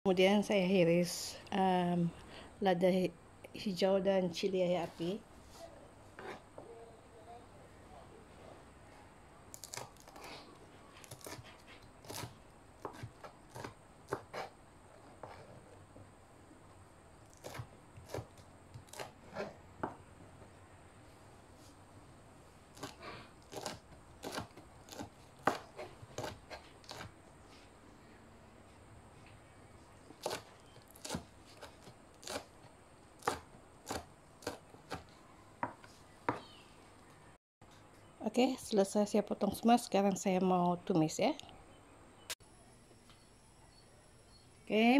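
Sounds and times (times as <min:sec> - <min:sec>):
knife cutting on plastic board: 0:09.6 - 0:15.7, 0:17.3 - 0:19.6, 0:22.7 - 0:27.2, 0:30.2 - 0:32.6, 0:33.2 - 0:35.1
knife chopping on cutting board: 0:12.1 - 0:14.5, 0:22.8 - 0:27.1.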